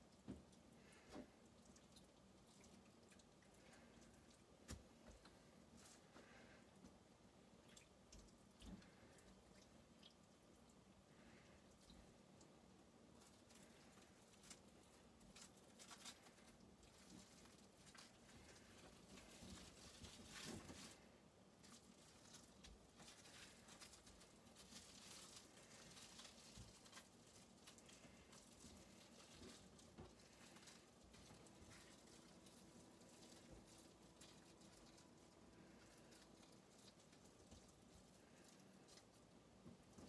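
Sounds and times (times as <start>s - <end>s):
cling film crinkling: 13.1s - 39.4s.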